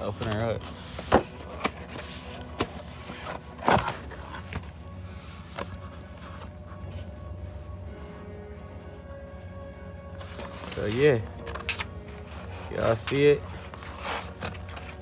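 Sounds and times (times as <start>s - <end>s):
cardboard rustling: 0.0s - 7.0s, 10.2s - 15.0s
cardboard snapping and knocking: 1.0s - 4.7s.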